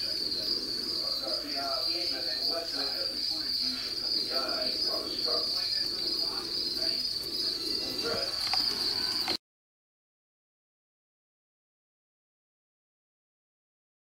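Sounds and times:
faint low murmur: 0.0s - 9.4s
insect trill: 0.0s - 9.4s.

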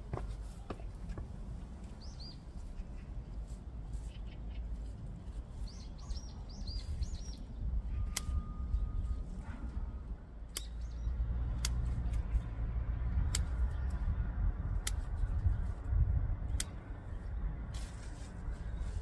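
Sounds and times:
garden scissors snipping: 10.5s - 10.9s, 11.5s - 12.3s, 13.2s - 14.0s, 14.7s - 15.5s, 16.5s - 17.0s.

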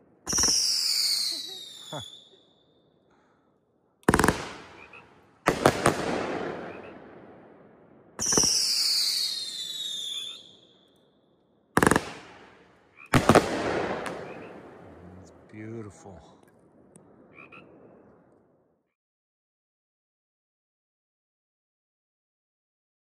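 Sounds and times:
firework shots exploding: 0.2s - 2.2s, 4.0s - 10.7s, 11.8s - 15.3s
firework whistle falling in pitch: 0.3s - 2.4s, 8.2s - 10.7s.

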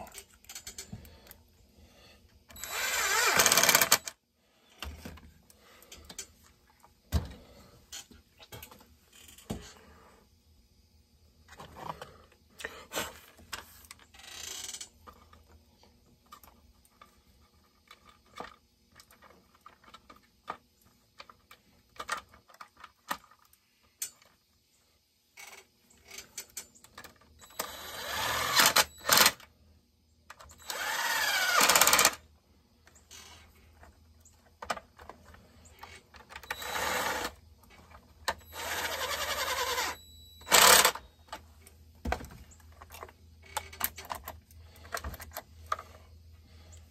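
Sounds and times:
parts clicking and clinking: 2.3s - 9.8s, 32.8s - 46.9s
cordless power driver running: 2.6s - 4.1s, 27.5s - 29.4s, 30.6s - 32.2s, 36.4s - 37.4s, 38.5s - 41.0s.

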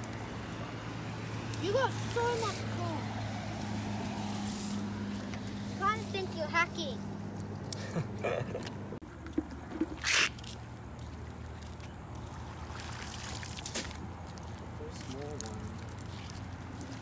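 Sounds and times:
rush of water: 12.2s - 17.0s.

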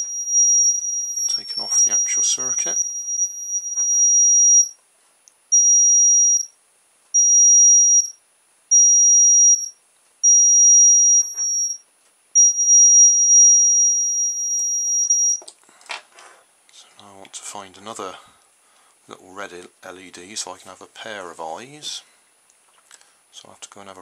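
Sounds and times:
high-pitched reversing beeper: 0.0s - 4.7s, 12.4s - 15.4s.

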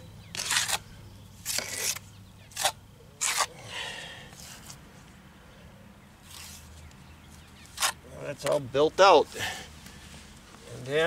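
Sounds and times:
trowel scraping wet cement: 0.3s - 0.8s, 1.4s - 3.6s, 7.6s - 8.6s.

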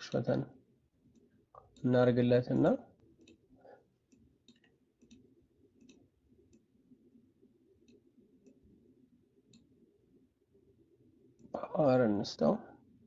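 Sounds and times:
low background hiss: 0.0s - 13.0s
computer mouse clicks: 3.0s - 3.5s, 4.1s - 6.7s, 7.8s - 8.6s.

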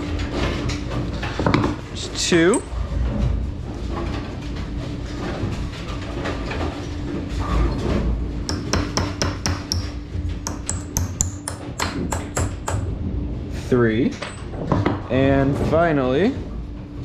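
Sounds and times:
hammer tapping metal pin: 8.5s - 12.8s.

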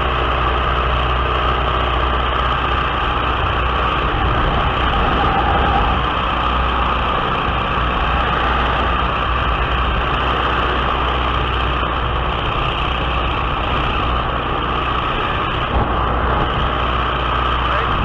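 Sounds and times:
plane engine and propeller: 0.0s - 18.0s
wind rush on microphone: 0.0s - 18.0s.

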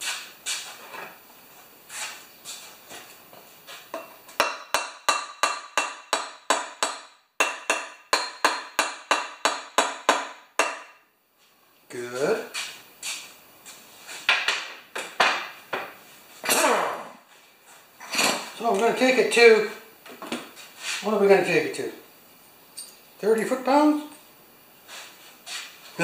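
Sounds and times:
hammer tapping metal: 3.9s - 11.0s.

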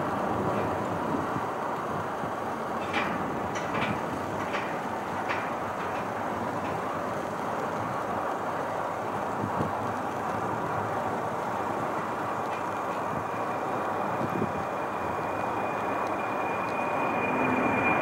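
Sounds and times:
jet engines roaring: 0.0s - 18.0s
thin high whine: 12.3s - 18.0s.

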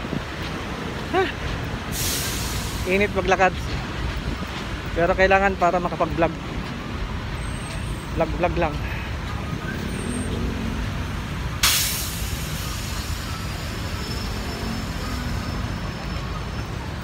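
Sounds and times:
traffic rumble: 0.0s - 17.0s
sharp hiss: 1.9s - 3.1s, 11.6s - 14.0s.

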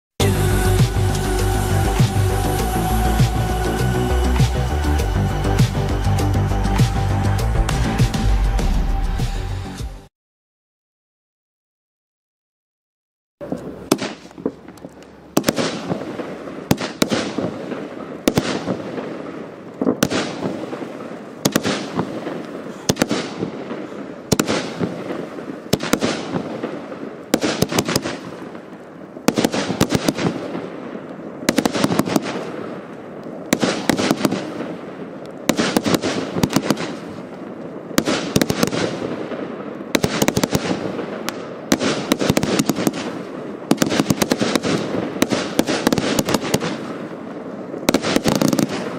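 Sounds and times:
firework cracks and bangs: 13.4s - 48.9s.

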